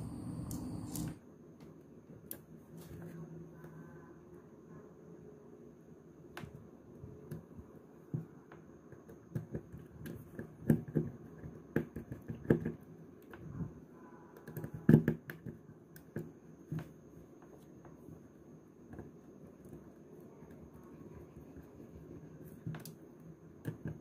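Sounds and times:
small clicks and taps on plastic: 6.3 - 6.6, 7.2 - 13.7, 14.4 - 18.0, 22.4 - 24.0.

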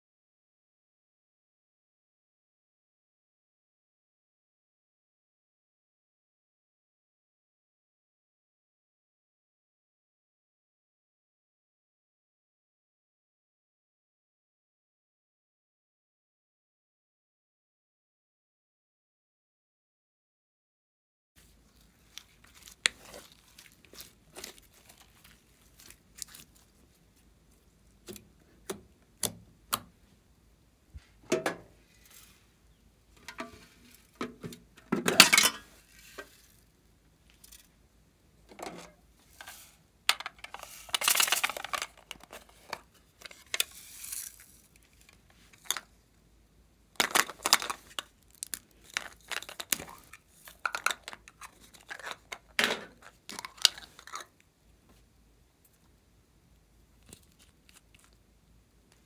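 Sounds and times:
foam beads rattling into slime: 43.6 - 44.8
plastic containers clicking and tapping: 47.0 - 54.2.

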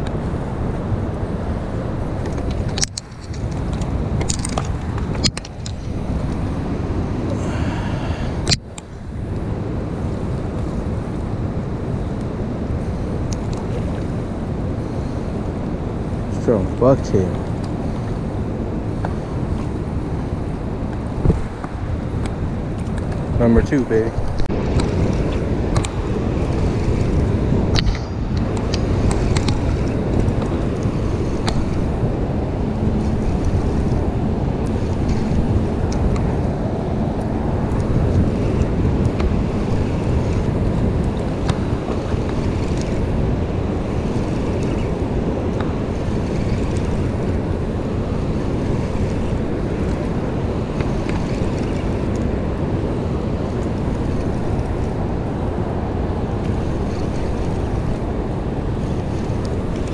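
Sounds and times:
wind buffeting the microphone: 0.0 - 59.9
turbulent river water rushing: 20.6 - 59.9.

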